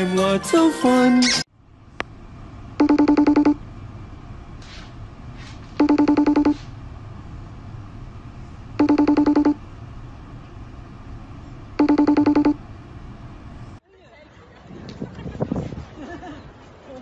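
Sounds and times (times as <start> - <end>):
electronic telephone ring: 2.8 - 3.6, 5.8 - 6.6, 8.8 - 9.6, 11.8 - 12.6.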